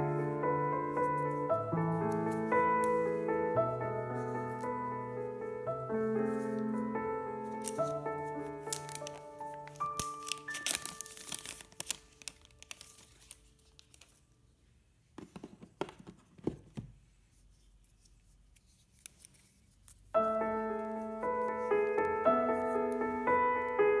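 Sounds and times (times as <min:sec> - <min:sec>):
soft piano music: 0:00.0 - 0:14.3, 0:20.0 - 0:24.0
plastic wrap tearing and crinkling: 0:07.4 - 0:14.4.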